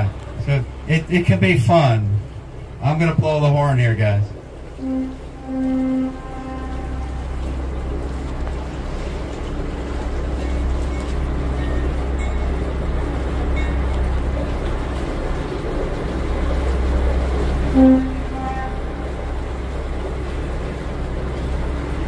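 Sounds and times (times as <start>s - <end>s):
boat engine rumbling: 0.0s - 22.0s
boat horn blast: 4.0s - 22.0s
water hissing: 4.4s - 22.0s.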